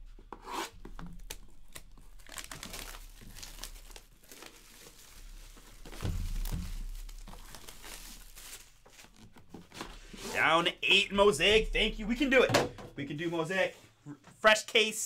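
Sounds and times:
plastic shrink wrap crinkling: 1.0 - 11.1
low thump: 5.9 - 7.4.

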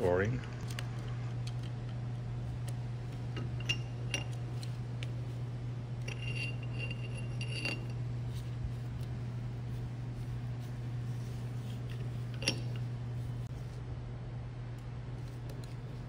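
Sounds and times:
steady low hum: 0.0 - 16.0
ringing metal clink: 6.1 - 8.0.

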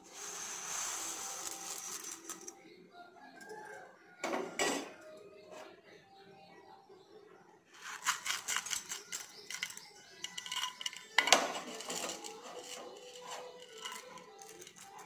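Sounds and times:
dry lentils pouring into steel vessel: 0.0 - 2.5, 9.2 - 14.9.

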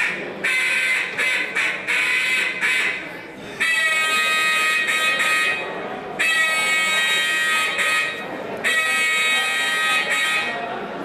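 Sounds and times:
duck call reedy notes: 0.0 - 10.7.

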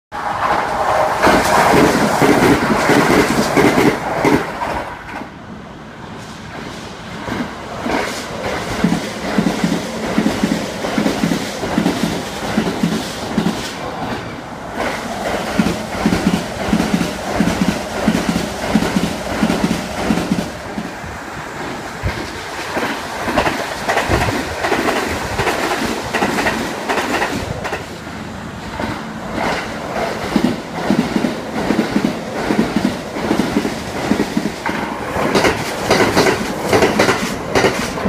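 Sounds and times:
electric train passing: 0.1 - 38.0
wheels clickety-clack over rail joints: 0.2 - 5.4, 6.2 - 38.0.

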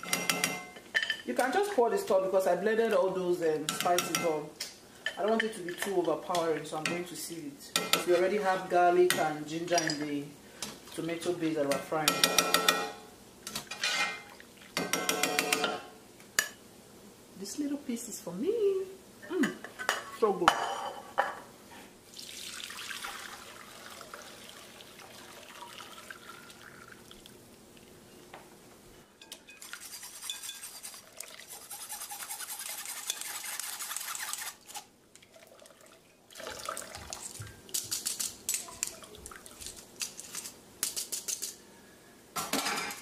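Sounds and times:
metal spoon scraping sieve: 29.5 - 34.8.

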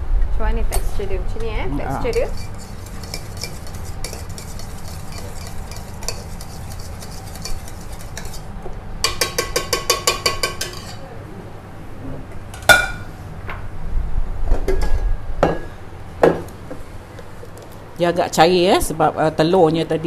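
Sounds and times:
utensil stirring in mixing bowl: 2.0 - 8.5.

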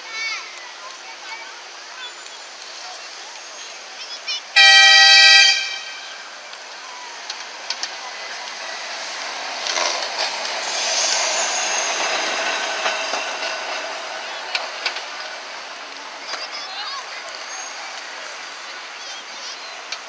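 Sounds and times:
tram horn blast: 4.6 - 6.4
tram wheels clicking over rails: 6.5 - 20.0
faint high wheel squeal: 17.4 - 17.9.

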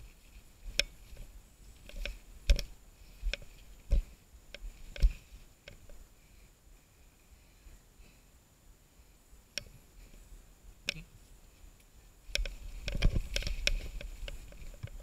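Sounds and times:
bike knocking and rattling: 12.3 - 15.0.

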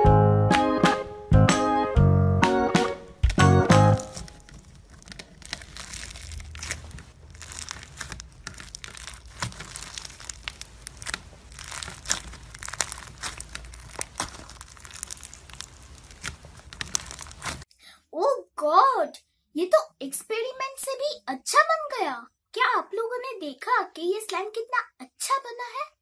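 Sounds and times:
crunchy slime crackling: 3.2 - 17.7.

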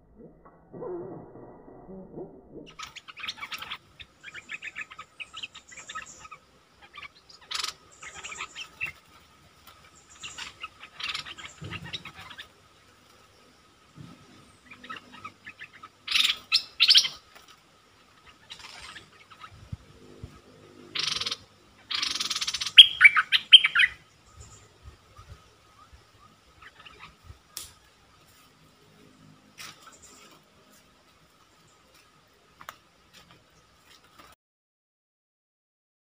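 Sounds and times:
bulbul chirps and chattering: 2.7 - 9.1, 9.8 - 12.6, 14.5 - 17.2, 20.9 - 27.8
harsh bird calls: 2.7 - 17.4, 18.1 - 28.2.

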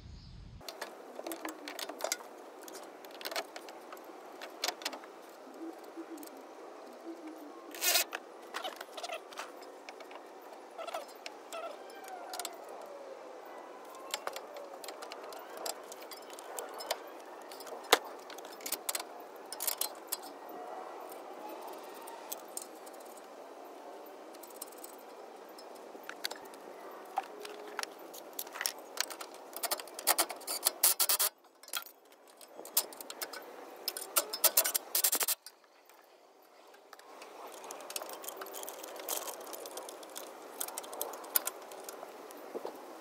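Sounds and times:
metal parts and tools clinking: 13.8 - 20.5, 24.2 - 35.7, 36.7 - 42.4.

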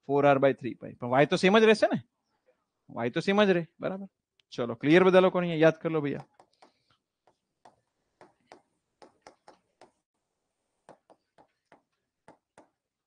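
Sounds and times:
pen tip tapping board: 6.2 - 10.0, 10.8 - 12.8.

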